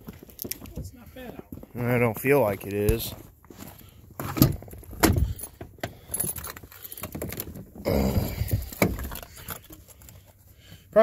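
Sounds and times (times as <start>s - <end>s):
truck door creaking: 4.2s - 9.3s
keys jangling and clicking: 5.2s - 7.6s.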